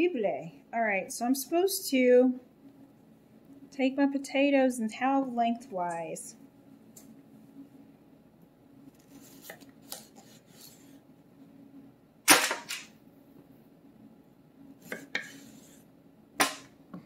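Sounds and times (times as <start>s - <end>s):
knife cutting on wooden board: 14.8s - 15.8s.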